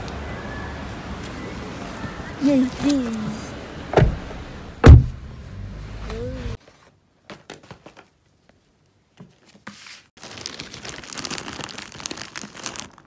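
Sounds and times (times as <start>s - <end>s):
plastic bag crinkling: 10.2s - 13.0s.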